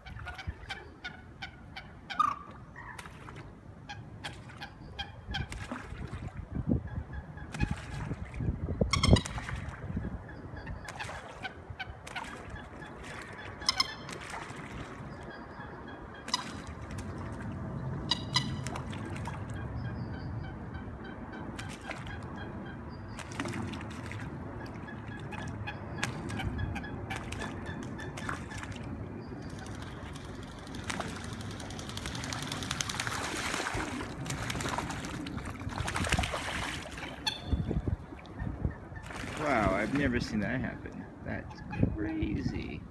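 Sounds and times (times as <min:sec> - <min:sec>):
water splashing: 0:05.4 - 0:06.5, 0:10.9 - 0:15.3, 0:16.2 - 0:19.7, 0:23.1 - 0:38.4, 0:39.0 - 0:41.0
wings flapping: 0:29.5 - 0:36.7.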